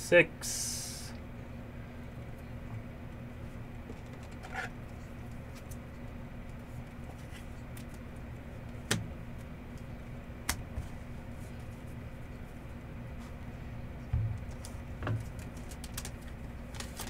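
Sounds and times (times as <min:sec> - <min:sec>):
steady low hum: 0:00.0 - 0:17.0
cards rustling: 0:14.4 - 0:17.0.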